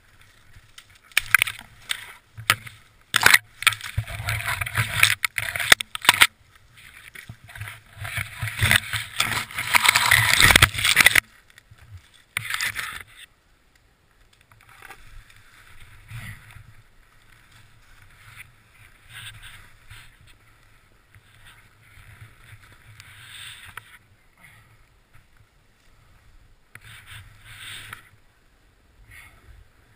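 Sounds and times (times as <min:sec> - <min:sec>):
clothing and snow rustling: 0:14.9 - 0:24.2.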